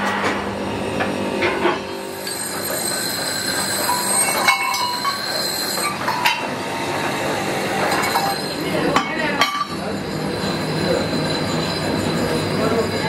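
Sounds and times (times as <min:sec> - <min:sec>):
workshop machine whine: 0:00.0 - 0:13.0
metal tubes clinking: 0:02.2 - 0:06.4, 0:07.8 - 0:13.0.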